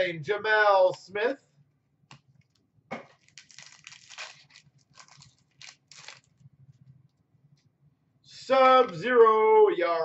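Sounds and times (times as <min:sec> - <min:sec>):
trading cards rustling: 0:03.2 - 0:06.4.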